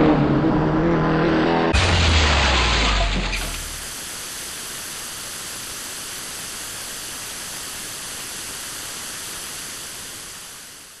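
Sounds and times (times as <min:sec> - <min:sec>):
white noise hiss: 0:03.7 - 0:11.0.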